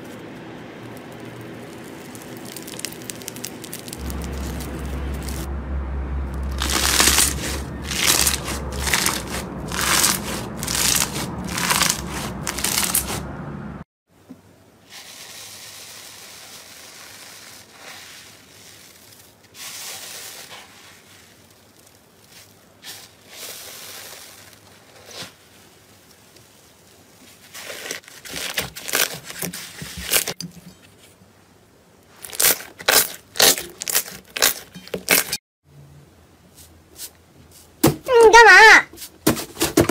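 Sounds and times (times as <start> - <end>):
foam beads crackling: 0.0 - 5.5, 6.3 - 13.3, 14.9 - 30.4, 32.1 - 35.4
slime crinkling in metal bowl: 0.8 - 5.5, 6.4 - 13.2, 32.1 - 35.4.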